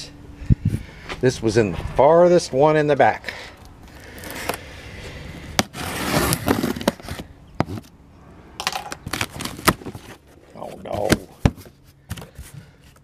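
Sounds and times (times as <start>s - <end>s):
cardboard flaps rustling: 9.0s - 13.0s.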